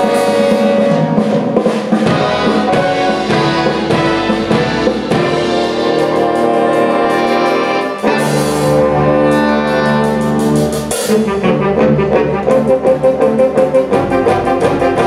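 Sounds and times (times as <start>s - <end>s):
drum kit hits: 0.0s - 8.8s
brass chords: 0.0s - 15.0s
jazz big band playing: 0.0s - 15.0s.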